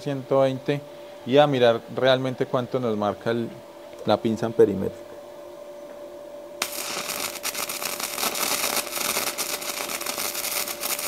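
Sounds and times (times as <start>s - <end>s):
welding arc crackling: 6.6s - 11.0s.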